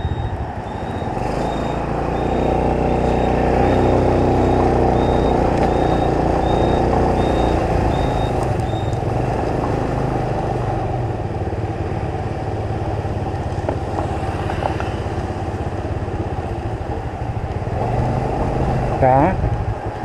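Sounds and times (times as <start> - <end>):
short high beeps: 0.0 - 9.0
motorbike engine running: 0.0 - 10.1
street traffic noise: 0.0 - 20.0.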